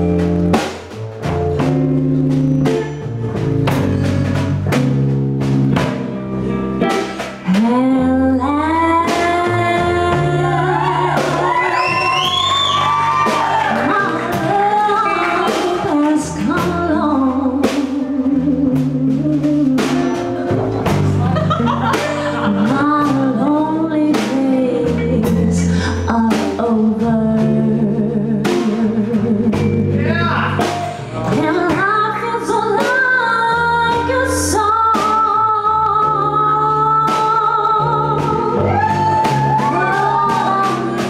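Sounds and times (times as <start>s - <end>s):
jazz band playing: 0.0s - 41.0s
woman singing: 7.5s - 12.0s, 13.4s - 20.3s, 22.3s - 29.9s, 31.3s - 41.0s.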